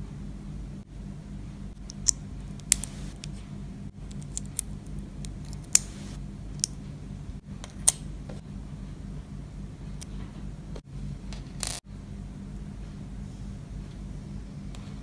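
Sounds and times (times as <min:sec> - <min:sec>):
plastic pieces clicking together: 0:04.0 - 0:05.9.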